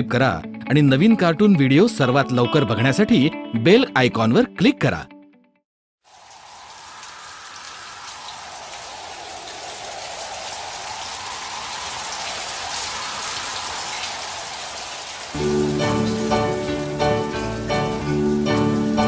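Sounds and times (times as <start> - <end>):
steady rainfall: 6.0 - 19.0
raindrops ticking: 6.1 - 19.0.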